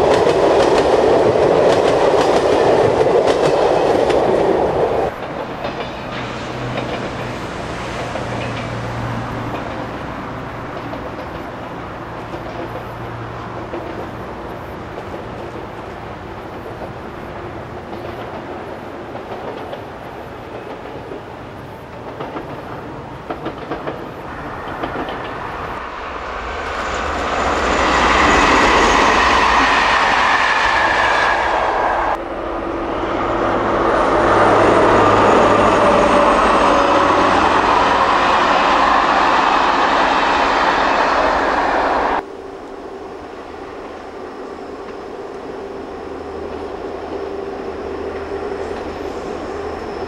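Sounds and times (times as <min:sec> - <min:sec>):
passenger train passing: 0:00.0 - 0:50.0.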